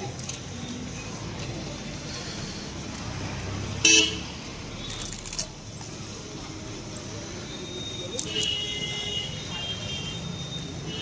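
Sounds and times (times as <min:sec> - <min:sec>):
street noise: 0:00.0 - 0:11.0
light metallic jangle: 0:02.9 - 0:03.8
vehicle horn beep: 0:07.6 - 0:11.0.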